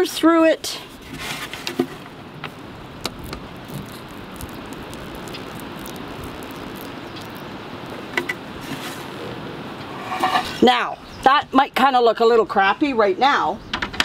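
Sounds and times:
paint roller squishing through mud: 0:01.1 - 0:08.9.

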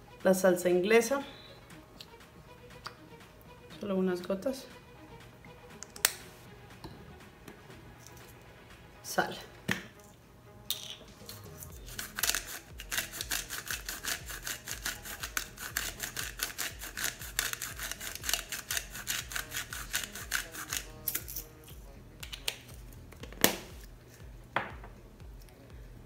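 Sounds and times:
salt grinder ratcheting clicks: 0:12.0 - 0:21.2.

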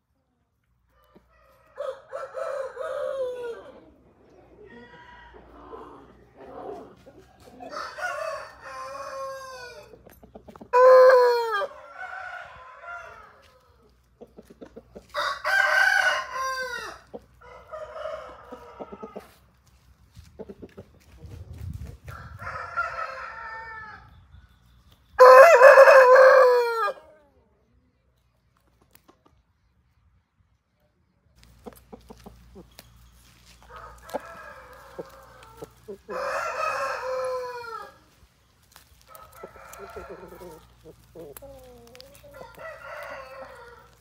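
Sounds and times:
roosters crowing: 0:00.9 - 0:04.0, 0:04.6 - 0:14.0, 0:15.0 - 0:19.4, 0:22.0 - 0:24.1, 0:25.2 - 0:27.1, 0:33.3 - 0:44.0.

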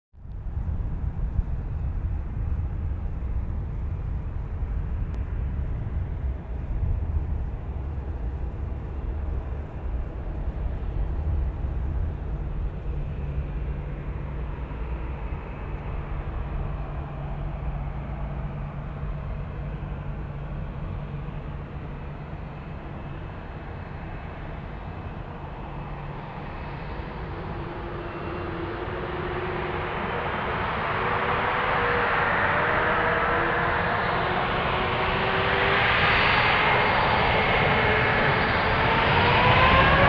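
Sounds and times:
jet engines spooling up: 0:08.9 - 0:40.0.

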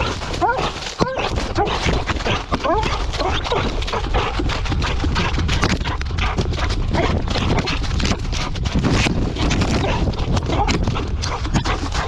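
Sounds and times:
dog paws running through dry leaves: 0:00.0 - 0:12.0
low camera movement rumble: 0:00.0 - 0:12.0.

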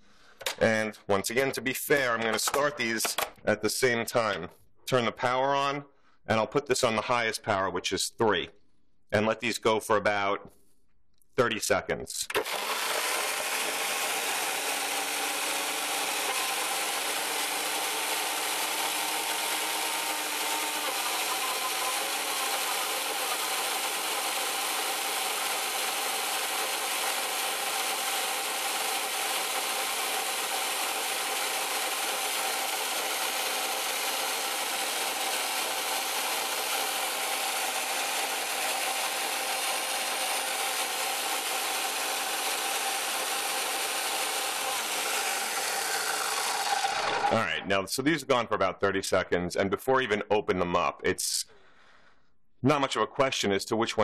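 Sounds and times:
blenders whirring: 0:12.3 - 0:47.5.

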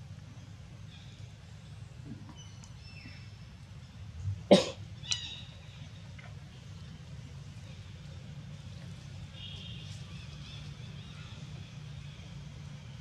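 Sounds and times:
cough-like burst: 0:04.5 - 0:04.8.

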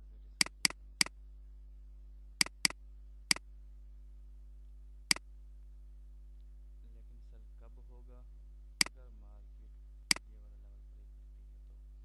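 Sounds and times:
low steady hum: 0:00.0 - 0:12.0
computer mouse clicking: 0:00.4 - 0:01.1, 0:02.4 - 0:03.4.

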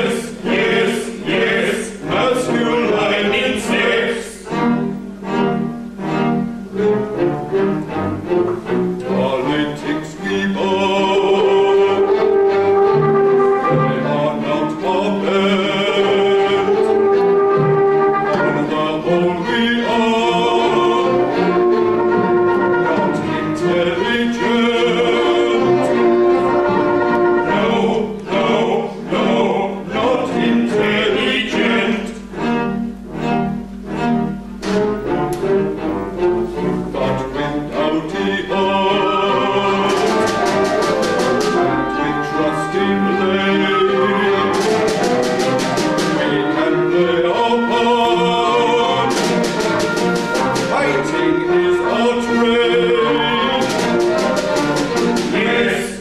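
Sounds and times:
men singing: 0:00.0 - 0:04.6, 0:09.0 - 0:12.5, 0:13.7 - 0:17.1, 0:18.4 - 0:32.3, 0:36.9 - 0:56.0
small orchestra with strings: 0:00.0 - 0:56.0.

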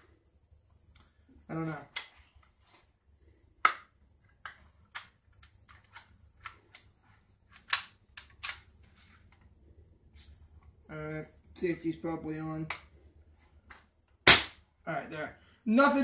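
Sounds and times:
air rifle mechanical clicks: 0:07.5 - 0:08.7.

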